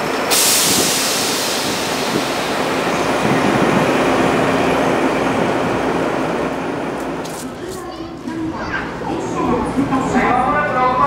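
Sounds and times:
train wheels rumbling on rails: 0.0 - 11.0
air hiss: 0.3 - 3.1.

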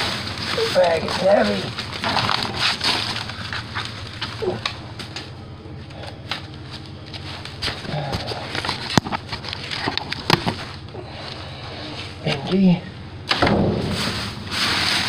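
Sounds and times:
plastic bags crinkling and rustling: 0.0 - 5.3, 6.2 - 11.4.

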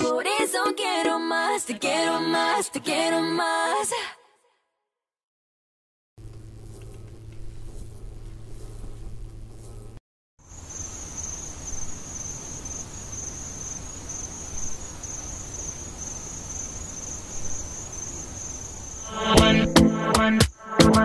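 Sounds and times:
crickets chirring: 6.2 - 19.3
low background hiss: 10.5 - 19.0.

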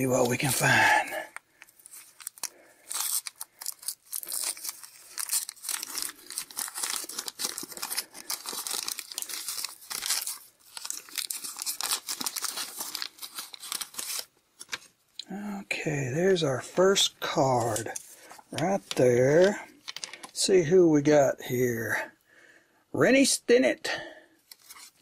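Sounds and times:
waxed paper wrapper crinkling: 0.0 - 15.1, 17.3 - 20.5, 24.4 - 25.0.

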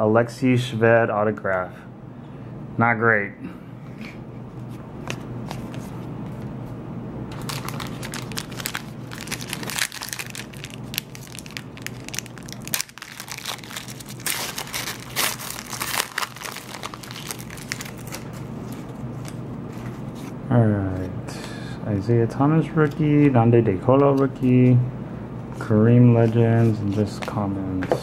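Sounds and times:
foil wrapper crinkling: 7.3 - 18.4.

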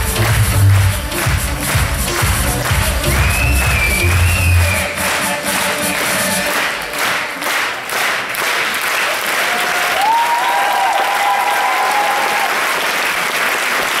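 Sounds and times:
audience applauding: 0.0 - 14.0
high cheer: 9.0 - 13.2.

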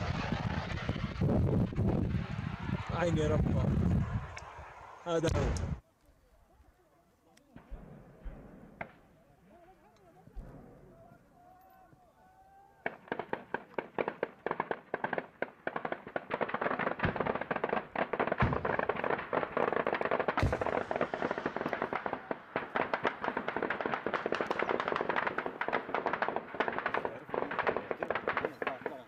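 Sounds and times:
deep booms: 5.3 - 5.8, 20.4 - 22.0.

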